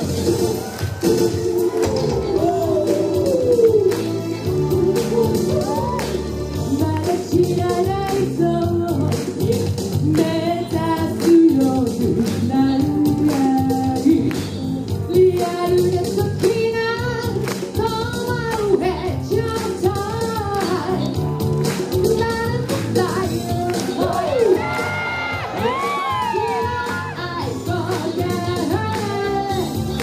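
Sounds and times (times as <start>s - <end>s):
dance-pop backing track: 0.0s - 30.0s
woman singing into a microphone: 6.6s - 21.2s, 22.0s - 30.0s.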